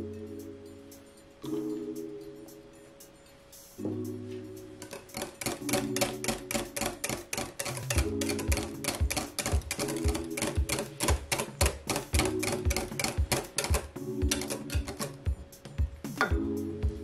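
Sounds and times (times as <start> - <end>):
background music with steady beat: 0.0 - 17.0
whisk clicking against glass bowl: 4.8 - 15.2.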